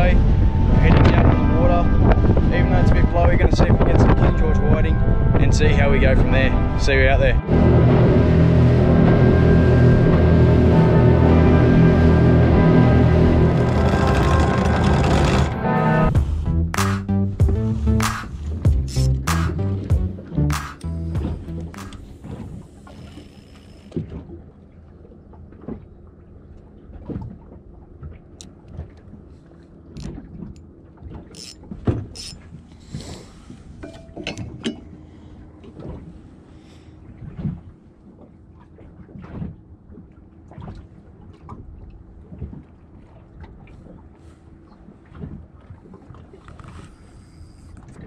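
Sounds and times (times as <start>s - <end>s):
fishing reel clicks: 18.8s - 19.5s, 22.8s - 23.9s, 31.3s - 32.4s.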